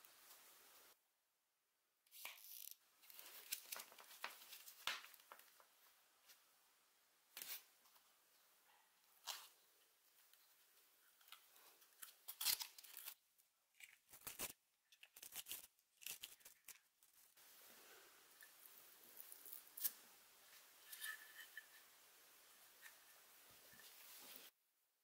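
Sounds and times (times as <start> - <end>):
tape crinkling: 2.2 - 5.6, 11.2 - 17.2
masking tape tearing: 12.2 - 13.2.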